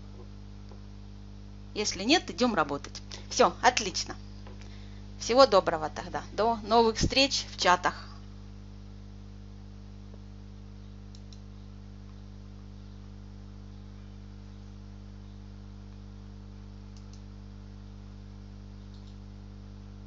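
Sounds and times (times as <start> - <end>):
low electrical hum: 0.0 - 20.0
mouse clicks: 11.1 - 11.5, 16.9 - 17.2, 18.9 - 19.2.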